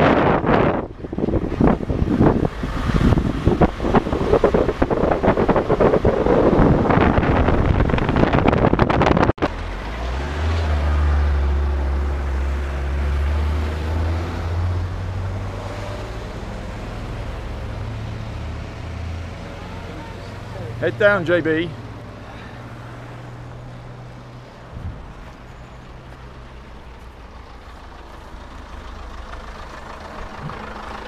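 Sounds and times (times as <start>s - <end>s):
wind buffeting microphone: 0.0s - 9.5s, 24.0s - 26.0s
car engine humming: 0.0s - 31.0s.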